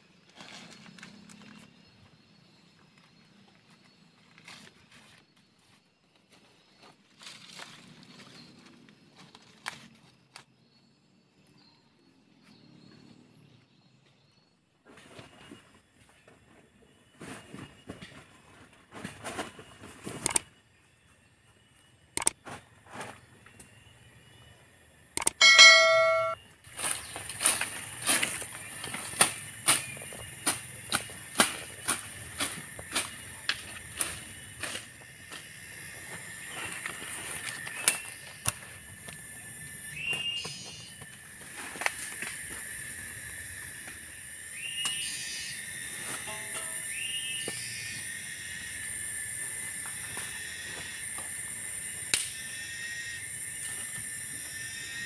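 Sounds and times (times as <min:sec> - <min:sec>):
cicadas droning: 0:00.0 - 0:55.0
leaves and undergrowth rustling: 0:03.8 - 0:10.1, 0:26.6 - 0:43.2
sharp clicks: 0:20.2 - 0:20.5, 0:22.2 - 0:22.4, 0:25.2 - 0:25.4
bird whistled call: 0:39.9 - 0:40.8, 0:46.6 - 0:48.0.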